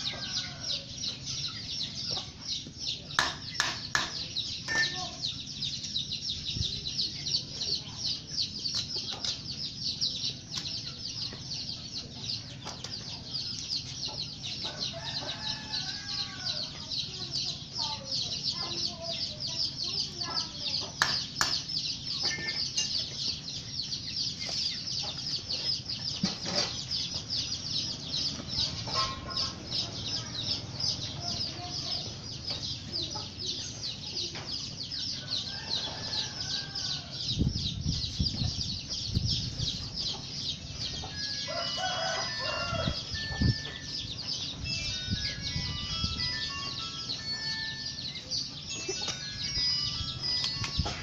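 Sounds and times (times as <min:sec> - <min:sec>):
chickens clucking: 0:00.0 - 0:51.0
rooster crowing: 0:14.7 - 0:16.6, 0:41.2 - 0:43.4.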